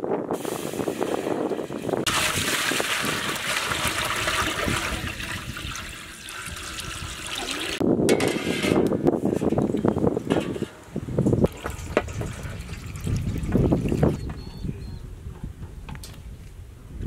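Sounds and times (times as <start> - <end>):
water pouring into metal pot: 0.4 - 7.8, 11.5 - 14.2.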